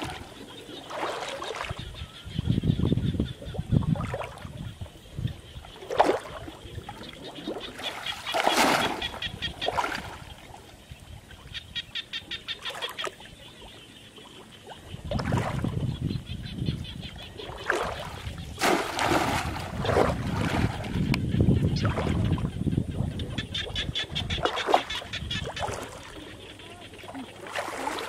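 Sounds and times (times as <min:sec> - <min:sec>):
water sloshing and splashing: 0:00.0 - 0:11.4, 0:12.5 - 0:28.0.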